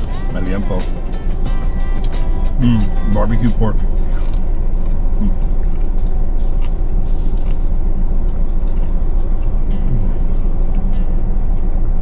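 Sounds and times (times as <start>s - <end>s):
steady low rumble: 0.0s - 12.0s
person chewing: 1.2s - 3.0s, 3.8s - 10.8s.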